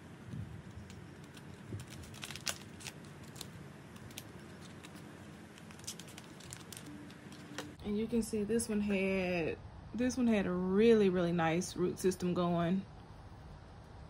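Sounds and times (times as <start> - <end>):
plastic bottle crackling: 0.5 - 7.8.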